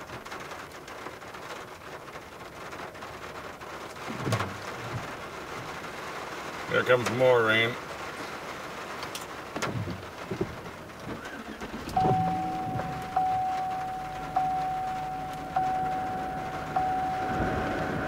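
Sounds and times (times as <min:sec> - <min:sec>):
vehicle warning chime: 0:11.9 - 0:18.0.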